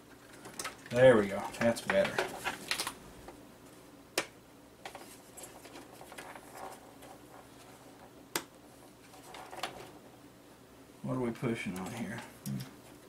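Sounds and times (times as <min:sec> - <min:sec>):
handling noises in computer case: 0:00.1 - 0:03.0, 0:04.8 - 0:08.1, 0:08.7 - 0:10.1.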